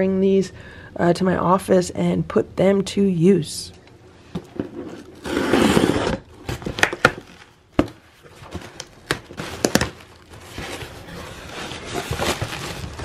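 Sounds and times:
cardboard flaps opened crinkling: 5.2s - 13.0s.

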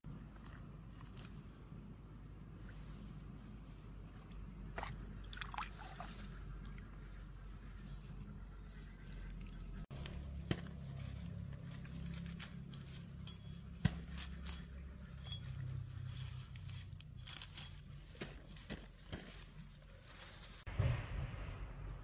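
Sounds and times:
low steady rumble: 0.1s - 22.0s
leaves rustling and tearing: 5.9s - 20.7s
stems snapping: 9.2s - 14.8s, 16.3s - 20.2s.

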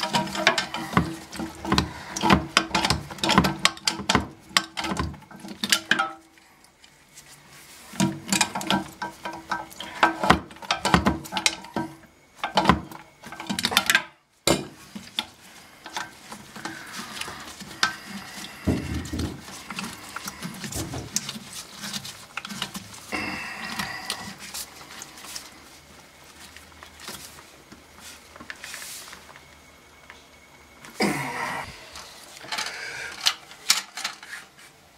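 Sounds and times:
hands clicking and knocking on plumbing: 0.0s - 6.2s, 8.0s - 24.4s.

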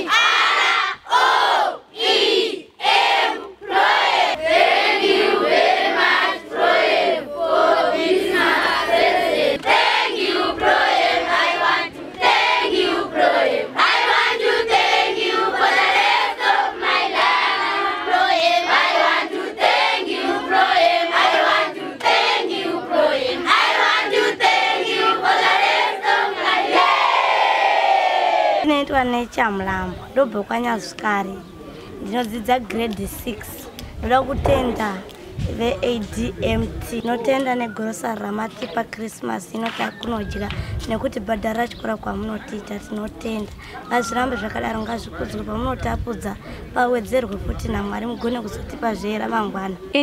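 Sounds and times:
children singing and chanting: 0.0s - 28.7s.

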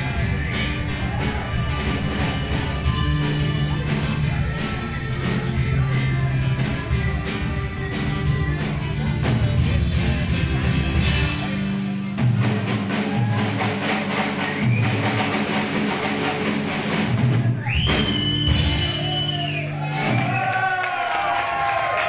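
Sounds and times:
accordion: 0.0s - 11.6s
drum beat: 0.0s - 19.3s.

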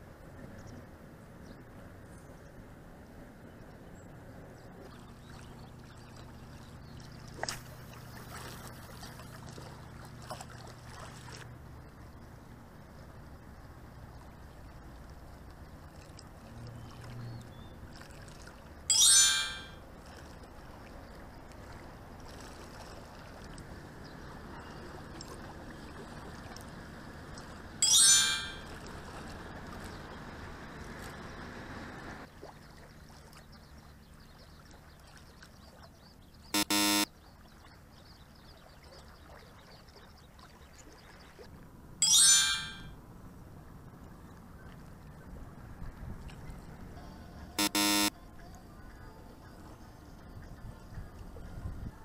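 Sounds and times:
wind at a seawall: 0.0s - 47.6s, 48.2s - 52.0s
water lapping: 4.6s - 18.9s, 19.7s - 27.8s, 28.6s - 31.5s, 32.2s - 36.5s, 37.1s - 41.8s
bright chime sound effects: 18.9s - 19.8s, 27.8s - 28.7s, 42.0s - 42.9s
buzzer-like tone: 18.9s - 19.8s, 36.6s - 37.1s, 47.6s - 48.1s.

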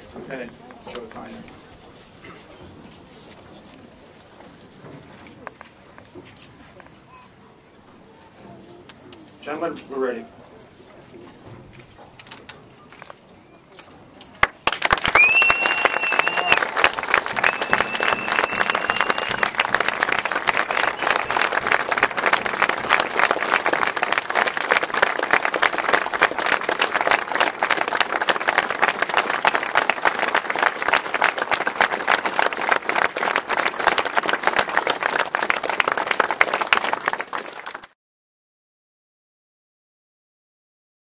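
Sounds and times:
crowd applauding: 14.4s - 38.0s.

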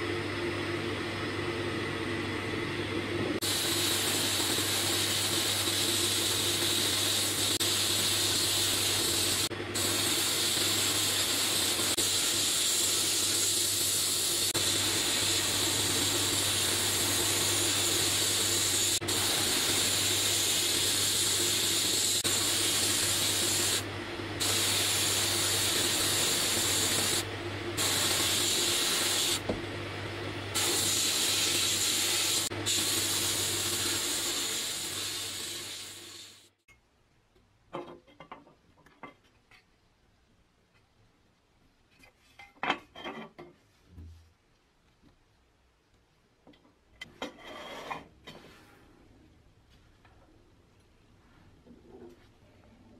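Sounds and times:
sandblaster hissing: 3.4s - 29.4s, 30.5s - 36.5s.

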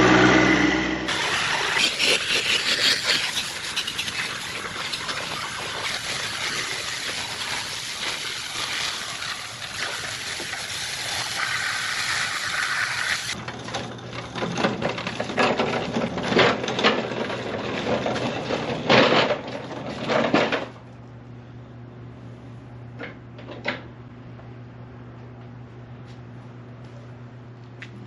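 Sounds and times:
water spraying from hose onto metal: 1.1s - 13.4s.

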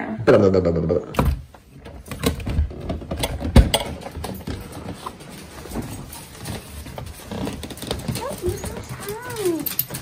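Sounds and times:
bags and coat rustling: 4.2s - 10.0s.

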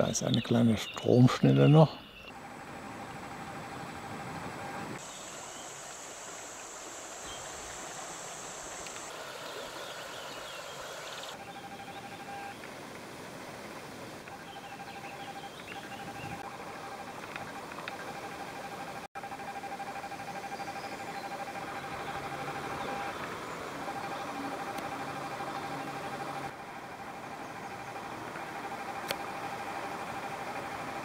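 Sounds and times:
bird chirps: 0.0s - 2.4s, 14.3s - 16.4s
steady high hiss: 0.0s - 19.1s
water running over stones: 5.2s - 11.3s.

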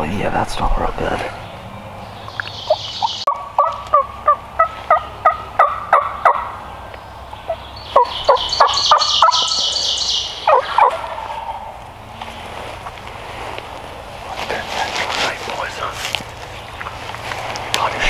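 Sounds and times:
turkey calling: 2.2s - 12.4s.

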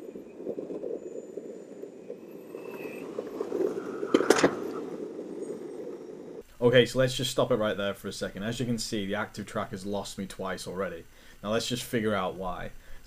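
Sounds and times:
skateboard wheels rolling on pavement: 0.0s - 6.5s.

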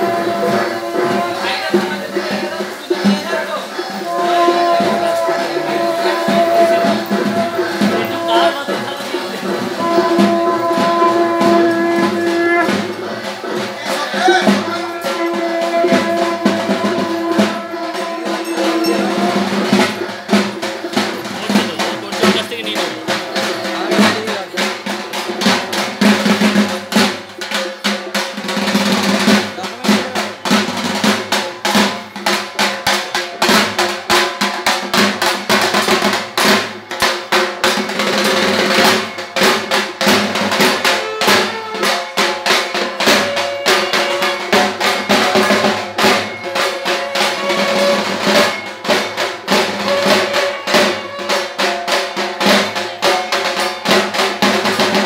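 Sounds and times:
drums in a fast rhythm: 0.0s - 55.0s
steady held tones: 17.7s - 20.1s.

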